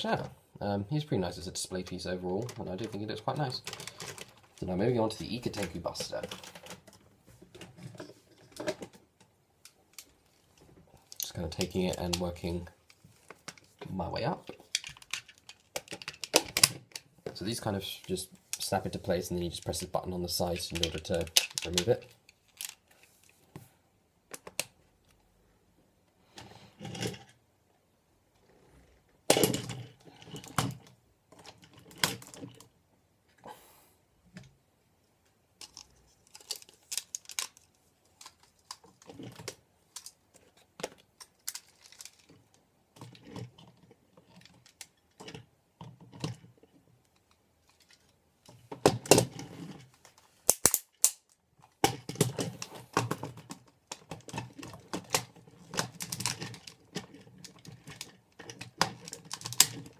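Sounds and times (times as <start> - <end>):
plastic toy parts clicking: 2.4 - 4.7, 14.5 - 17.1, 20.6 - 23.0, 35.6 - 46.4, 47.0 - 59.9.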